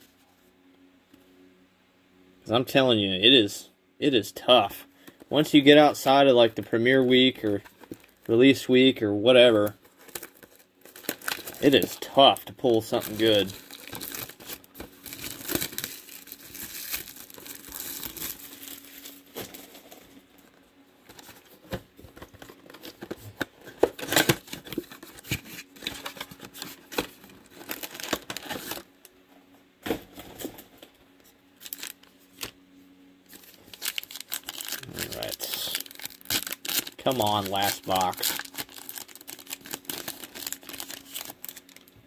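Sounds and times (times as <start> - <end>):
plastic wrappers crinkling and tearing: 6.9 - 20.5, 21.1 - 28.9, 31.6 - 32.6, 33.3 - 42.0.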